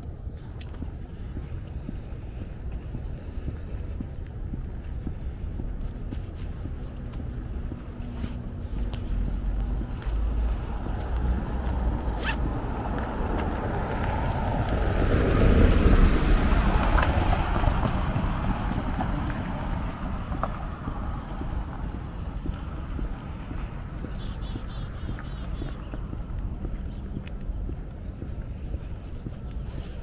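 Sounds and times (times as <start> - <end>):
steady low rumble: 0.0 - 30.0.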